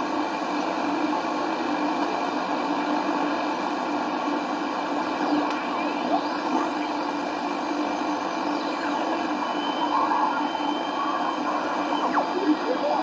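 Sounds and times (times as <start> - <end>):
radio static and hiss: 0.1 - 13.0
gliding radio whistles: 5.2 - 13.0
thin steady whistle: 9.3 - 12.2.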